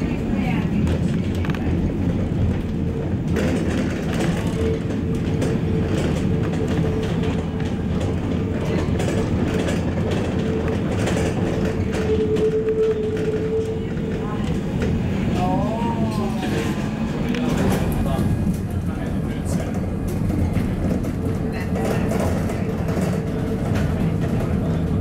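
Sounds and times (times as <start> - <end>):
tram wheels rumbling on rails: 0.0 - 25.0
tram motor whine: 4.1 - 18.9.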